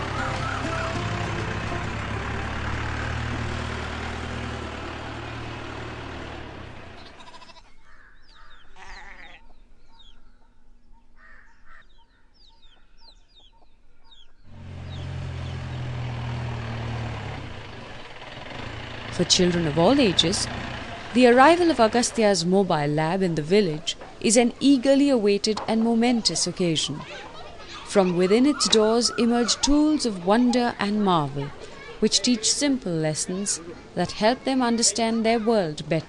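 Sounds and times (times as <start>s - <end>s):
chickens clucking: 0.0s - 2.0s, 25.2s - 34.0s
van engine rumble: 0.0s - 7.6s, 14.4s - 36.0s
small birds chirping: 6.9s - 16.9s, 19.2s - 36.0s.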